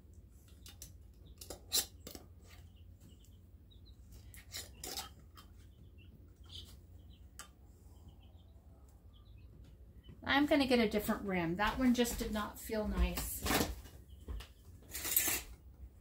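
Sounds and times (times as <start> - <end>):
metal band scraping glass jar: 14.9 - 15.6.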